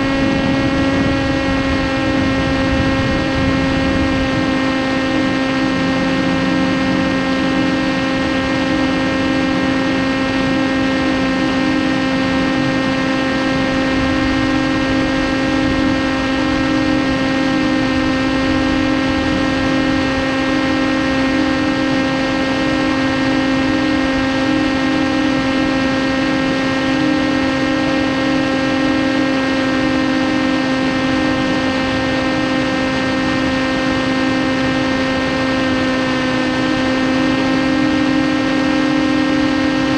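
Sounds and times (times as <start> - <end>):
electric motor and propeller whine: 0.0 - 39.9
wind noise: 0.0 - 39.9.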